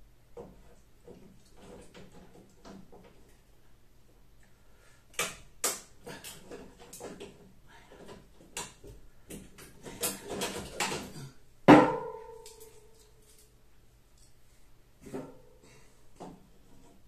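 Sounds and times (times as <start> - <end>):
knocking on sheet metal: 11.7 - 12.3
metal ringing: 11.7 - 13.0.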